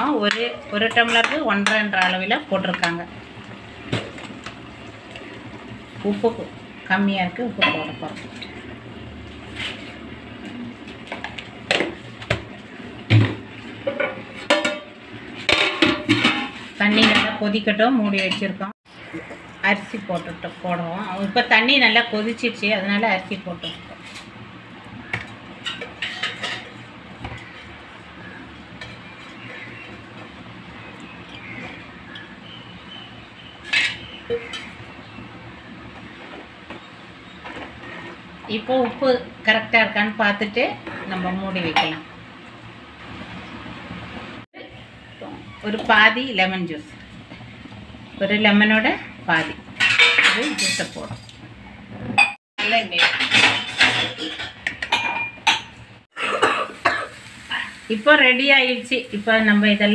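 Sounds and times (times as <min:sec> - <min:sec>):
metal spoon scraping a pot: 0:25.6 - 0:30.0, 0:33.6 - 0:34.8.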